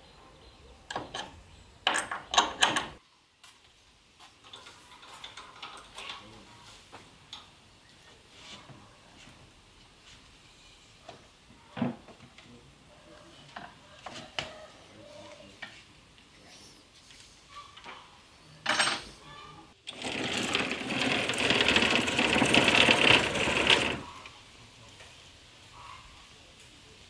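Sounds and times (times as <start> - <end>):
power tool rattling: 19.9 - 24.1.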